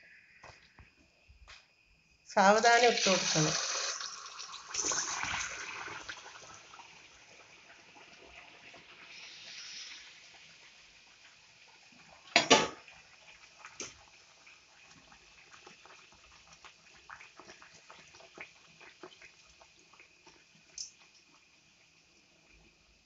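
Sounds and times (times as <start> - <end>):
dough deep-frying in oil: 2.4 - 23.0
oil crackling and popping: 4.0 - 21.6.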